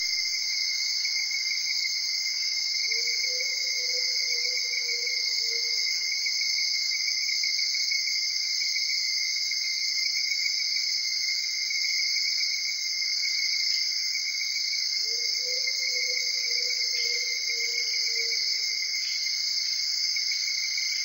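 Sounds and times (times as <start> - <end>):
insects trilling: 15.0 - 21.0.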